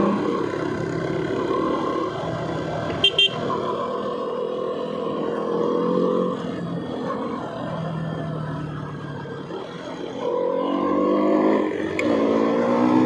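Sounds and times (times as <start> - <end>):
motorcycle running: 0.0 - 13.0
vehicle horn beeps: 2.9 - 3.4.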